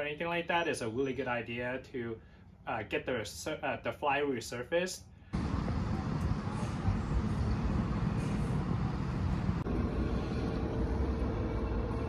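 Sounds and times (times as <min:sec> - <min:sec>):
traffic rumble: 0:05.2 - 0:12.0.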